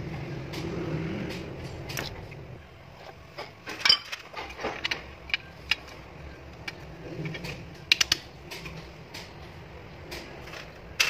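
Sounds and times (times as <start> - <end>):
metal parts clicking and knocking: 3.4 - 9.4.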